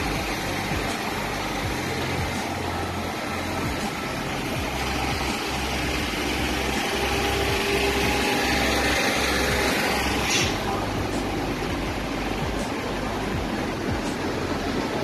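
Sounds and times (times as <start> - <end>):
street noise: 0.0 - 15.0
truck engine idling: 0.0 - 15.0.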